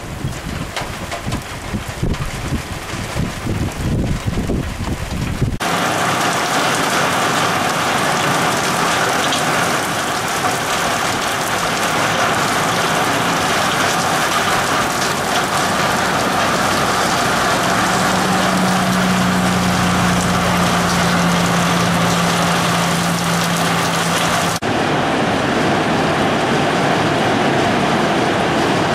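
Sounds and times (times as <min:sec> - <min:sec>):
wind buffeting the microphone: 0:00.0 - 0:05.6
heavy rain hissing: 0:00.0 - 0:28.9.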